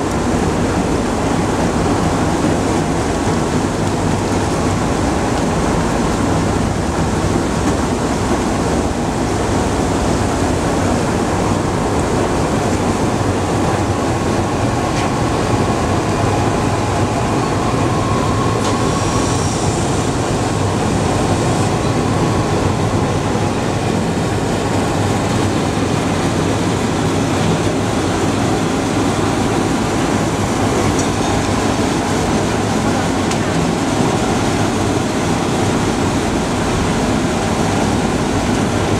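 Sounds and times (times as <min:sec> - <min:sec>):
washing machine mechanical rumble: 0:00.0 - 0:38.9.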